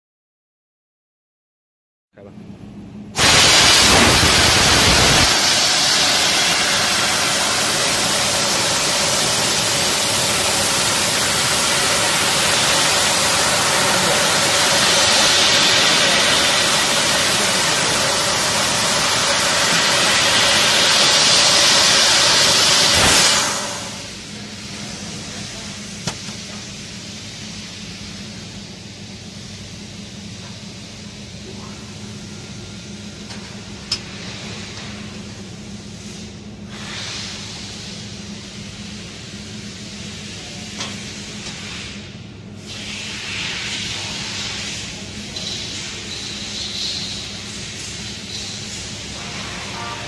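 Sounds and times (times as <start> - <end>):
high-pressure gas hiss: 3.2 - 28.4, 36.0 - 50.0.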